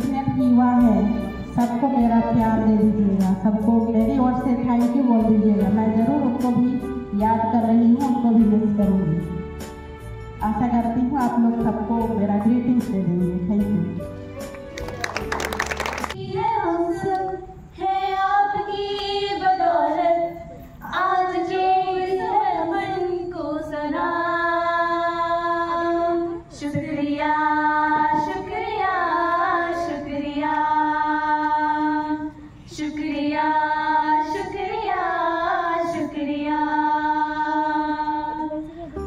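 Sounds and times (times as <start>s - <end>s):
women singing unaccompanied: 16.2s - 39.0s.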